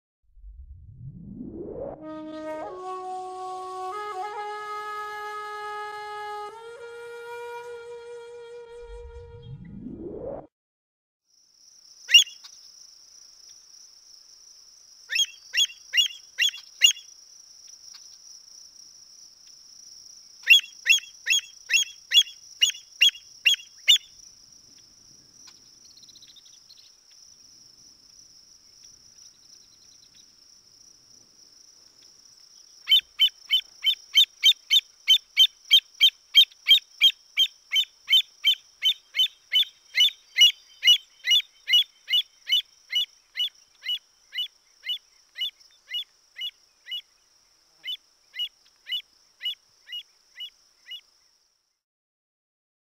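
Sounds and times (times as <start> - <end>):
cricket trill: 11.3 - 51.8
bird sharp high-pitched calls: 12.1 - 12.5, 15.1 - 17.1, 20.4 - 24.2, 32.8 - 47.1, 47.8 - 51.0.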